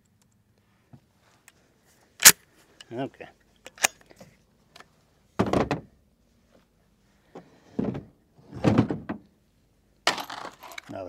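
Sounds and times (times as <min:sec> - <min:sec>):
handling knocks and rattles: 0:10.1 - 0:11.0.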